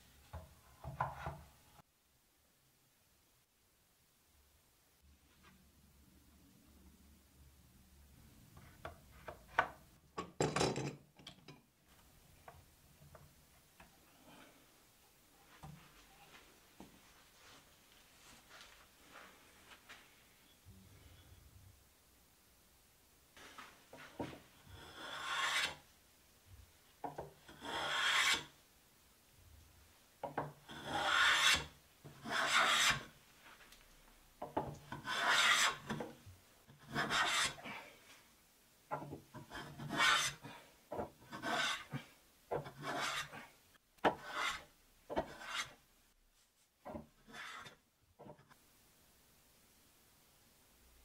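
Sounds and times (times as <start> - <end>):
hand plane shaving wood: 24.8 - 25.8, 27.6 - 28.4, 30.7 - 33.0, 35.0 - 36.0, 36.9 - 37.6, 39.6 - 40.4, 41.3 - 41.9, 42.7 - 43.3, 44.2 - 44.6.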